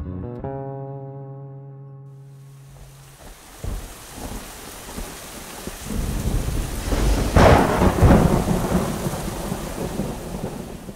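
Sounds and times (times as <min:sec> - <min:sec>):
rain: 0:02.2 - 0:10.9
thunder rumbling and cracking: 0:02.6 - 0:10.9.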